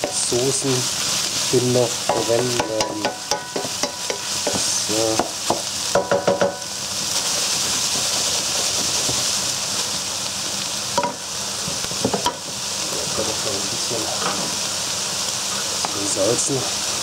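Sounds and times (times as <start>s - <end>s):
meat sizzling in a pan: 0.0s - 17.0s
spatula scraping and knocking pan: 2.0s - 6.7s.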